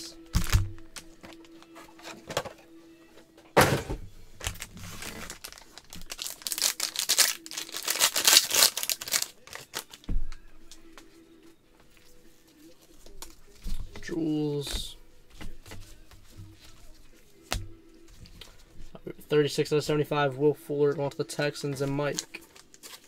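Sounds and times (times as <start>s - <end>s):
card wrappers tearing and crinkling: 0.3s - 1.4s, 4.4s - 10.1s, 21.7s - 23.0s
cards shuffling: 4.4s - 10.4s, 12.7s - 18.7s, 21.6s - 23.0s.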